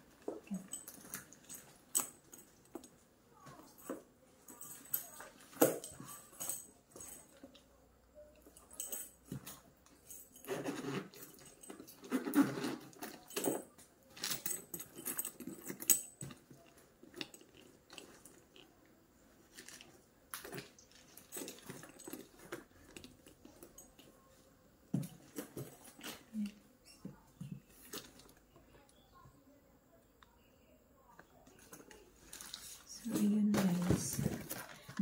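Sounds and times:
bag and strap handling: 0:00.1 - 0:07.6, 0:08.5 - 0:18.7, 0:19.4 - 0:24.3, 0:31.6 - 0:35.0.

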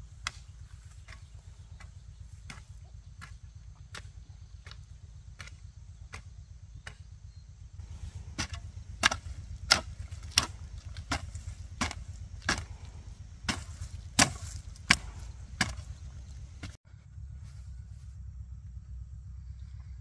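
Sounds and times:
hand tool chopping: 0:07.8 - 0:16.8.

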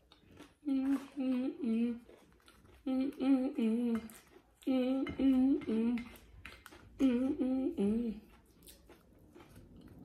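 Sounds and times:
woman humming: 0:00.6 - 0:02.0, 0:02.8 - 0:06.2, 0:07.0 - 0:08.2.

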